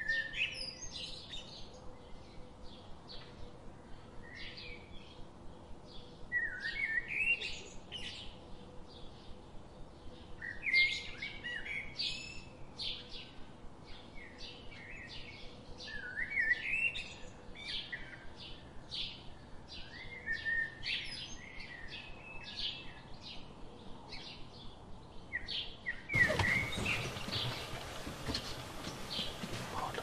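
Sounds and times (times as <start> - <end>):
birds chirping and whistling: 26.0 - 30.0
hissing background: 26.2 - 30.0.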